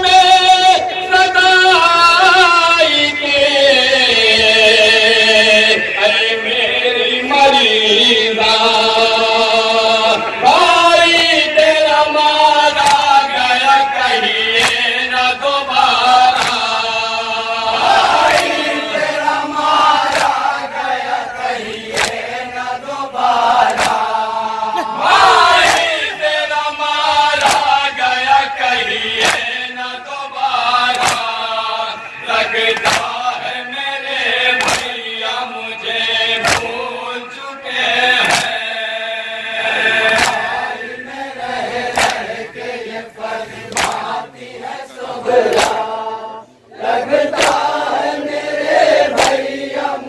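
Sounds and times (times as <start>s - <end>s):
man reciting into a microphone: 0.0s - 46.7s
men chanting a lament: 0.0s - 50.0s
hands slapping chests: 12.8s - 13.2s, 14.6s - 14.9s, 16.2s - 16.8s, 17.8s - 18.8s, 19.6s - 20.6s, 21.7s - 22.3s, 23.2s - 24.2s, 25.1s - 26.1s, 27.4s - 27.9s, 29.2s - 29.6s, 30.8s - 31.5s, 32.7s - 33.4s, 34.5s - 35.0s, 36.4s - 36.9s, 38.2s - 38.6s, 40.0s - 40.6s, 41.9s - 42.5s, 43.7s - 44.2s, 45.4s - 45.9s, 47.3s - 48.0s, 49.0s - 49.6s.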